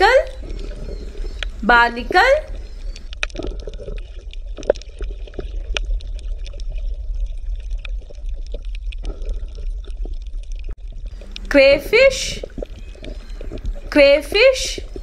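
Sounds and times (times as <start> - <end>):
water gurgling and trickling: 0.0 - 15.0
small irregular clicks and pops: 0.3 - 1.6, 2.5 - 11.5, 12.4 - 13.9
steady low rumble: 6.0 - 15.0.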